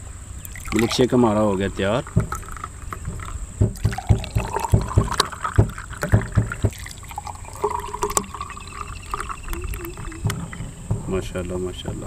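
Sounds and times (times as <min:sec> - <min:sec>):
milkshake gurgling into a glass: 0:00.5 - 0:11.6.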